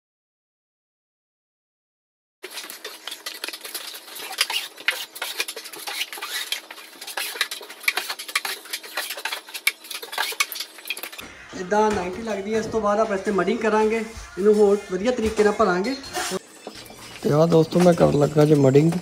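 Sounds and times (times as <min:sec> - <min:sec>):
taping knife scraping drywall: 0:02.5 - 0:11.2.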